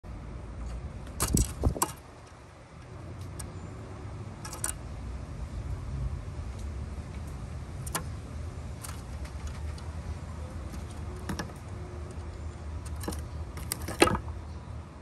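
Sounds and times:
bird landing on wooden ledge: 10.8s - 11.6s, 12.9s - 14.2s.

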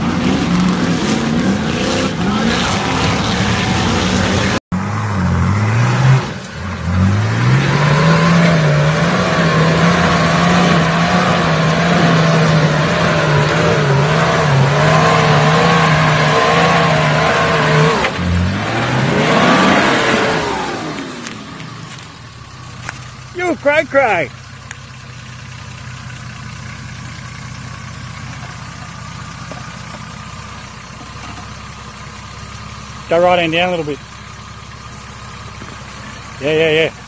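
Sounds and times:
engine revving hard: 0.0s - 21.3s.

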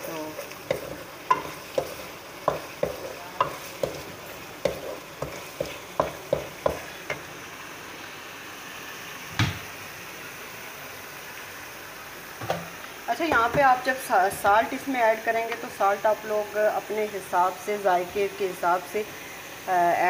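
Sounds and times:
masala sizzling: 0.0s - 20.0s
wooden spoon scraping a pan: 0.3s - 7.3s.

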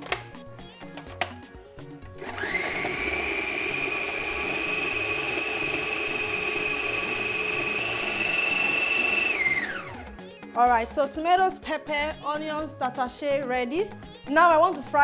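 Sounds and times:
food processor motor whining: 2.2s - 10.2s.

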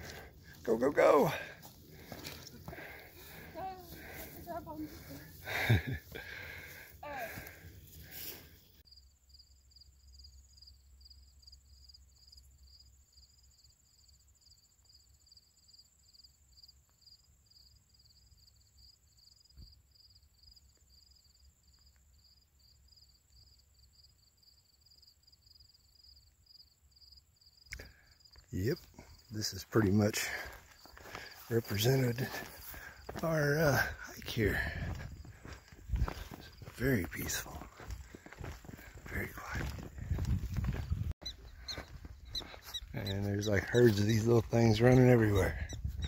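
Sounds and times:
insect pulsing chirp: 39.8s - 46.0s.

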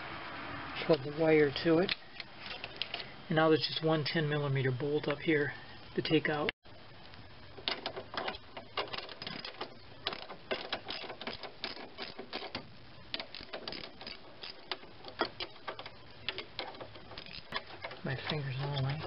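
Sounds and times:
socket ratchet clicking: 7.6s - 18.4s.

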